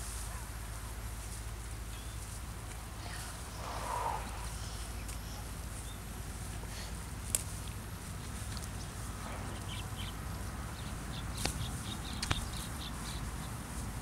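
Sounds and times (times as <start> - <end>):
cow chewing dry straw: 0.0 - 11.1
low background rumble: 0.0 - 14.0
small bird chirping: 8.2 - 13.6.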